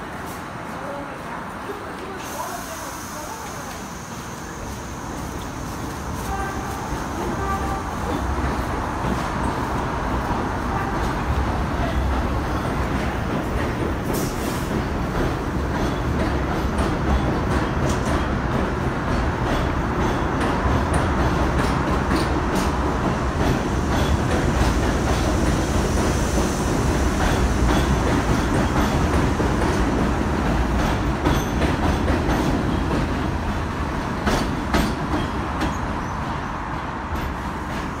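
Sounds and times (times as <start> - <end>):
subway train rumbling past: 0.0 - 38.0
wheels clacking over rail joints: 7.3 - 25.6, 27.1 - 38.0.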